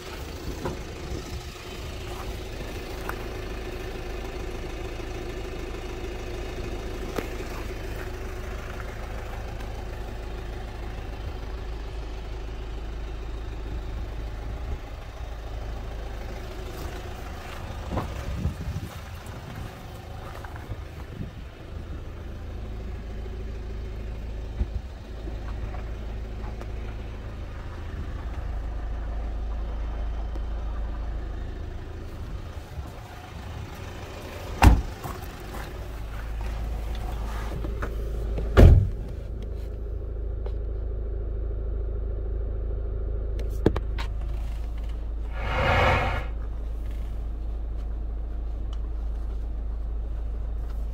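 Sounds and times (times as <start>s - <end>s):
steady low rumble: 0.0s - 29.4s, 45.1s - 50.6s
car doors shutting: 34.6s - 34.9s, 38.5s - 39.1s.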